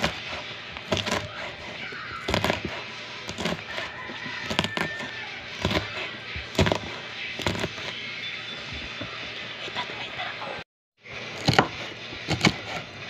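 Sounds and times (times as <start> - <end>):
knife chopping on wooden board: 0.0 - 7.9, 11.4 - 12.9.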